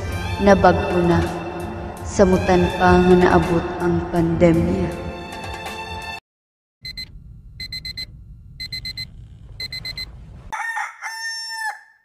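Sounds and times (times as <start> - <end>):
digital alarm clock beeping: 6.9 - 10.1
rooster crowing: 10.5 - 12.0.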